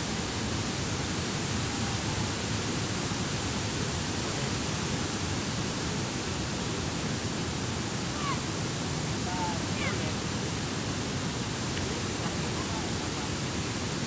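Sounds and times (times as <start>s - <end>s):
water rushing through spillway: 0.0s - 14.0s.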